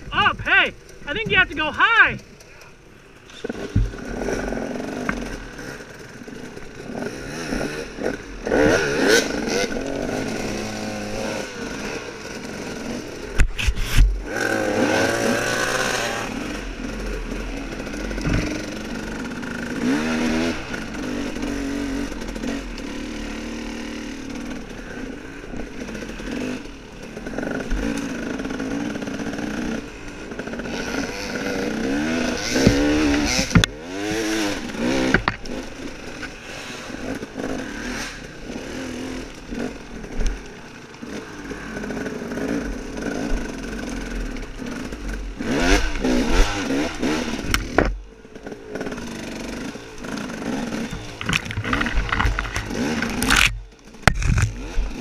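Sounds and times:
dirt bike engine revving: 0:00.0 - 0:55.0
sharp knocks and clatter: 0:18.2 - 0:19.0, 0:32.4 - 0:33.8, 0:35.0 - 0:35.6, 0:50.9 - 0:54.8.

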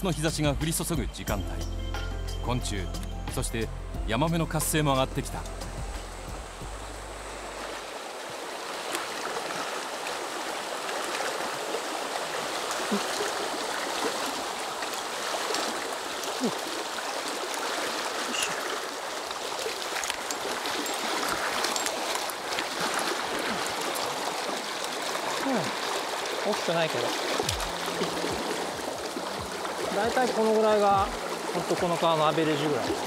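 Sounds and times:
stream rushing over stones: 0:04.4 - 0:33.0
small ticks and splashes: 0:08.2 - 0:33.0.

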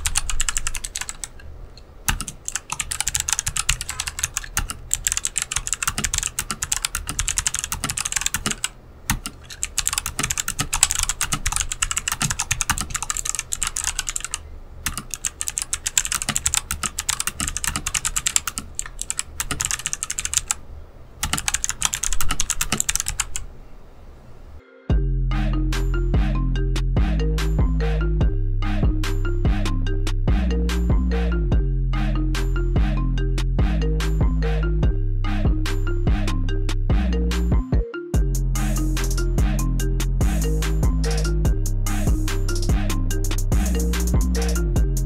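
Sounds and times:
fast typing on clicky keyboard: 0:00.0 - 0:01.4, 0:02.1 - 0:20.6, 0:21.2 - 0:23.5.

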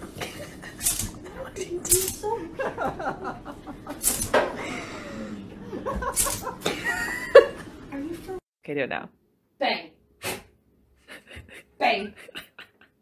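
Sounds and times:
person laughing quietly: 0:00.0 - 0:07.7, 0:11.0 - 0:13.0.

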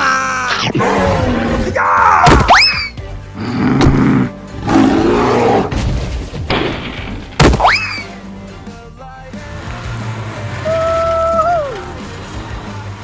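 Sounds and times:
background music: 0:00.0 - 0:13.0
dinosaur roars: 0:00.8 - 0:01.8, 0:03.4 - 0:05.8.

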